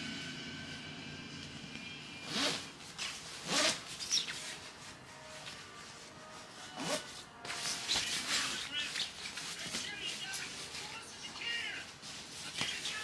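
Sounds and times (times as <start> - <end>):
jacket zipper pulled: 2.2 - 4.6, 6.7 - 7.1.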